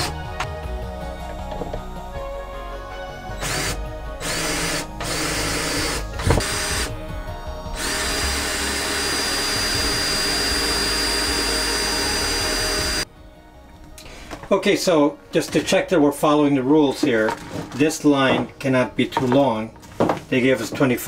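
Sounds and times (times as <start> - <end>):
cordless drill driving screws: 3.4 - 6.9, 7.8 - 13.0.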